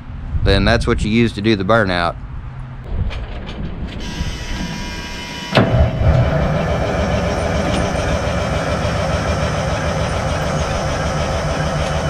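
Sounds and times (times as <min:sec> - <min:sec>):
diesel engine starting and running: 0:02.9 - 0:12.0
starter whine: 0:04.0 - 0:12.0.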